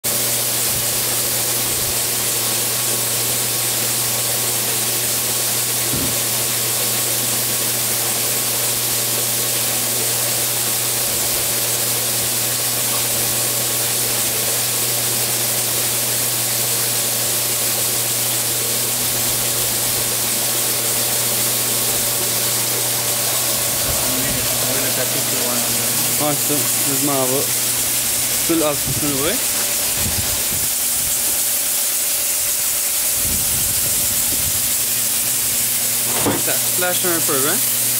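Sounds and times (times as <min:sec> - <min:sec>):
low machine hum: 0:00.1 - 0:37.9
water spraying from jets: 0:00.1 - 0:37.9.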